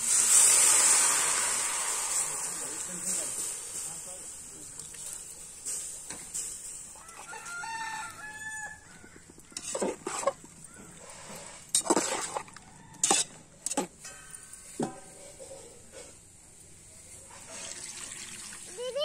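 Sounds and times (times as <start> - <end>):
rooster crowing: 7.0 - 9.2
metal spoon scraping steel pot: 9.5 - 16.1.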